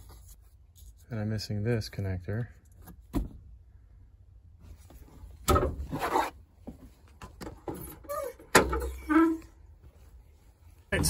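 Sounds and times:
rubbing and scraping: 4.7 - 6.9.

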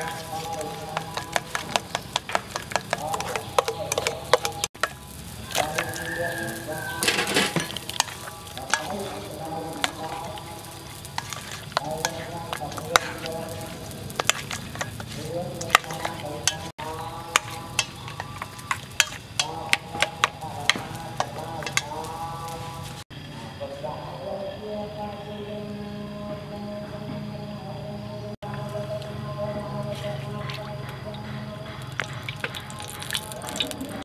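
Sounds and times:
small clicks against metal bowl: 0.1 - 5.0.

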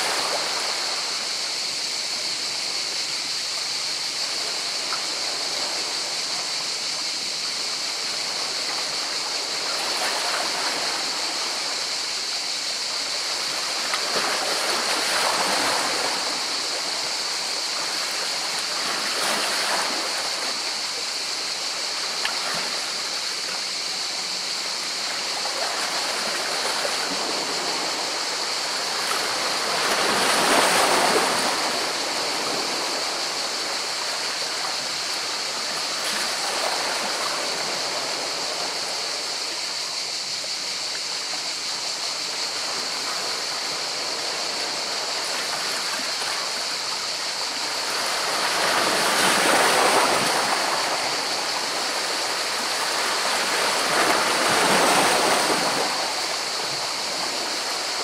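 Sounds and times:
surf washing against rocks: 8.0 - 23.8, 24.5 - 39.8, 41.4 - 58.0.

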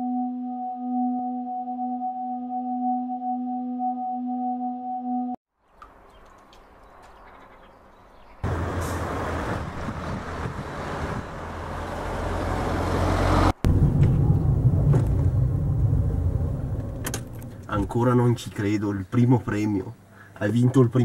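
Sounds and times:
car approaching on road: 8.4 - 18.0
engine and road rumble inside car: 13.1 - 18.0.

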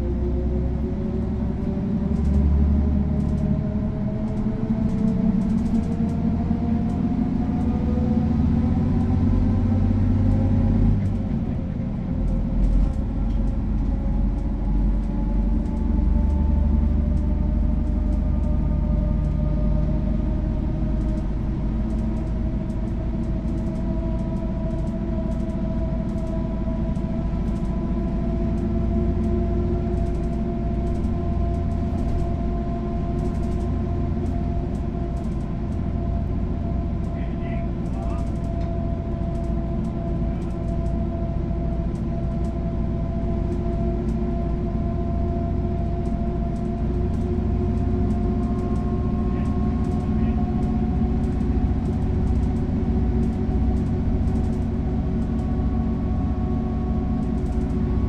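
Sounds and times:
bus diesel engine accelerating: 0.0 - 58.0
gear change: 17.1 - 58.0.

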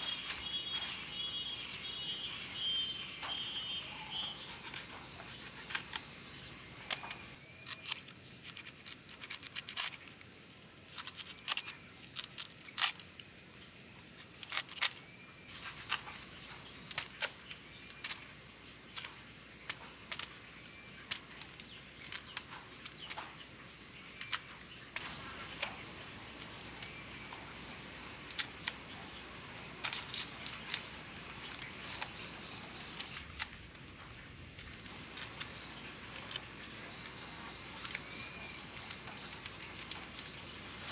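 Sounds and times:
knife cutting banana stems: 0.0 - 10.3, 24.1 - 33.6, 34.6 - 40.9.

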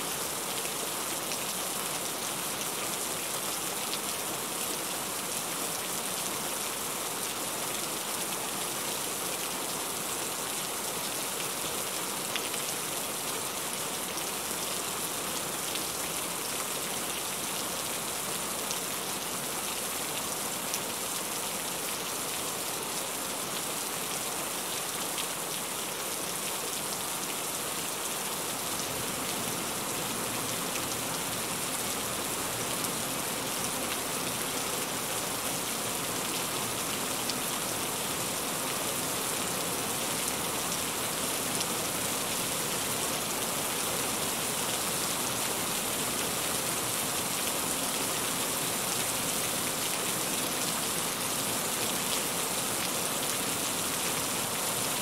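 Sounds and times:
heavy rain falling: 22.2 - 55.0.

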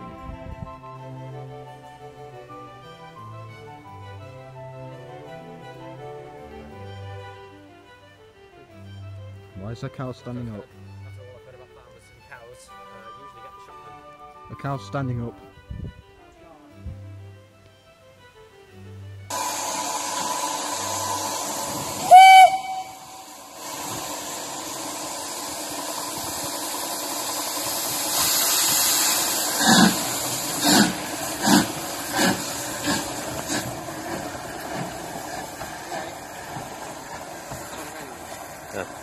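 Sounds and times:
locomotive whistle blast: 19.3 - 23.3
steam exhaust chuffs: 19.3 - 39.0
steam locomotive hissing: 19.3 - 39.0.

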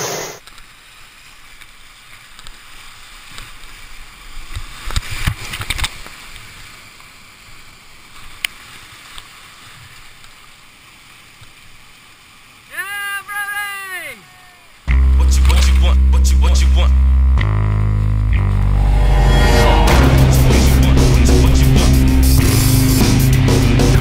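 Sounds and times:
rapids rushing: 18.4 - 24.0.

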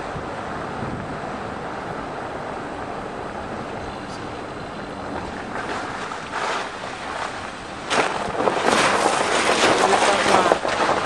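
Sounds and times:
car tyres rolling over snow: 5.2 - 11.0.

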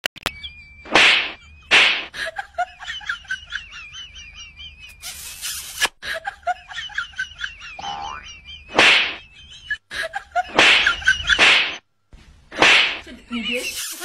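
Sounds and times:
loud animal hiss: 5.0 - 5.9, 13.6 - 14.0.

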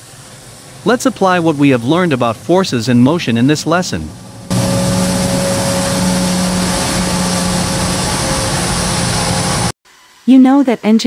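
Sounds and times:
jet engines roaring: 0.0 - 9.8.

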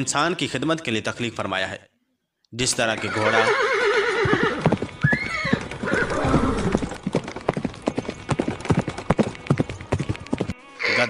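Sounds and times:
hooves galloping: 2.6 - 11.0
horse whinny: 3.0 - 7.0, 10.8 - 11.0.

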